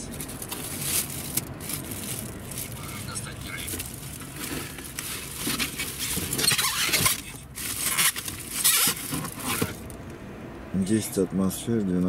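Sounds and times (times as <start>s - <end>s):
packaging rustling: 0.2s - 9.8s.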